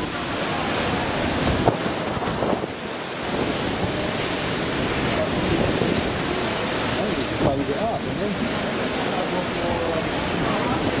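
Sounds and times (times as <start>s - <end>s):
ship wake water rushing: 0.0s - 11.0s
wind buffeting microphone: 0.0s - 11.0s.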